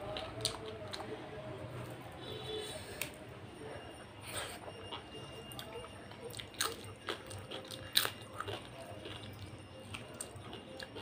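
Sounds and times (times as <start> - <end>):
chewing food: 0.0 - 1.2, 4.2 - 11.0.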